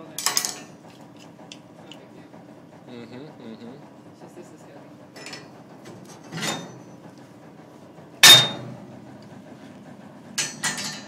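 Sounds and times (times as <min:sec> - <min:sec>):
steel plate clanking on metal slats: 0:06.1 - 0:06.9, 0:08.2 - 0:08.8, 0:10.4 - 0:11.0.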